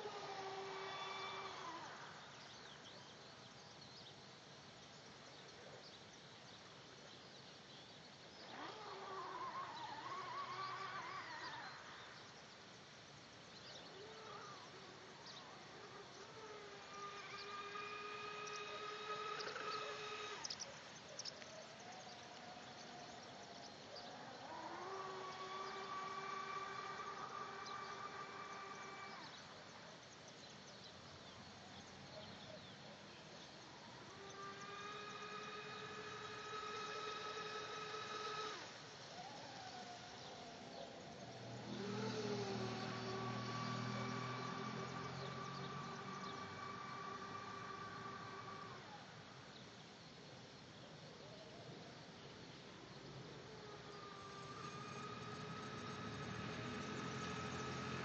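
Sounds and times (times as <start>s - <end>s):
electric motor whining: 0.0s - 2.9s, 8.3s - 12.4s, 13.6s - 30.1s, 33.3s - 49.5s, 53.0s - 58.0s.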